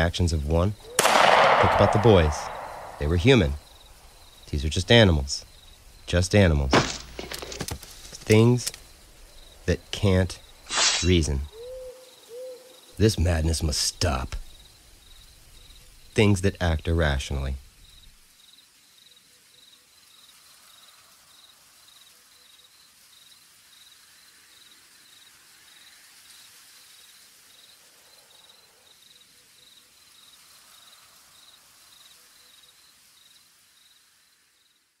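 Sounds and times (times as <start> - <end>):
cricket chirping: 0.0 - 35.0
soft hiss: 0.0 - 35.0.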